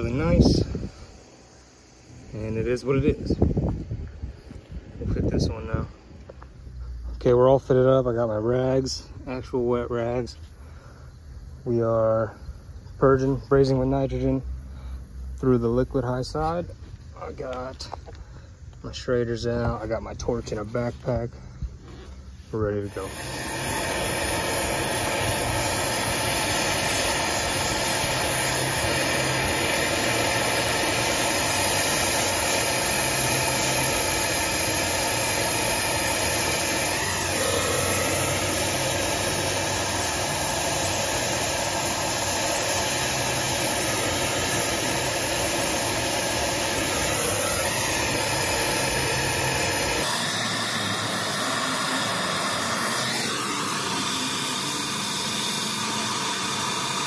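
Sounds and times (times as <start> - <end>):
torch flame hissing: 0.0 - 6.6, 21.7 - 57.0.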